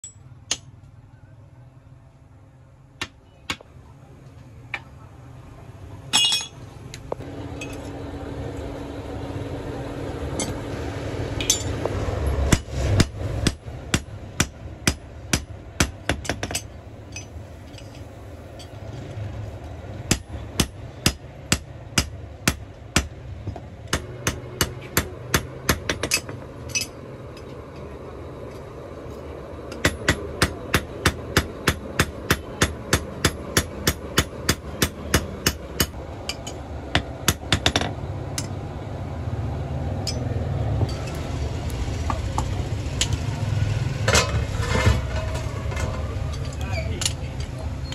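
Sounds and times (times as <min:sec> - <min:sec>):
hammer striking anvil: 0:06.1 - 0:06.6, 0:11.4 - 0:11.8, 0:12.5 - 0:17.4, 0:20.1 - 0:23.1, 0:23.9 - 0:27.0, 0:29.7 - 0:38.5, 0:40.0 - 0:40.3.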